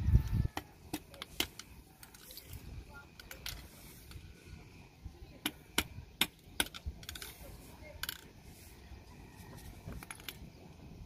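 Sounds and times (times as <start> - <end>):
metal parts clicking on concrete: 0.1 - 4.3, 5.4 - 8.4, 9.5 - 10.5.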